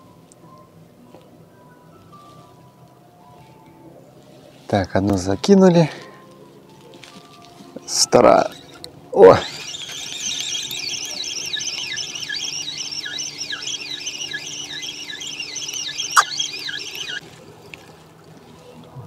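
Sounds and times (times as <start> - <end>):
fishing reel whirring squeal: 7.9 - 17.2
sharp reel click: 9.4 - 17.2.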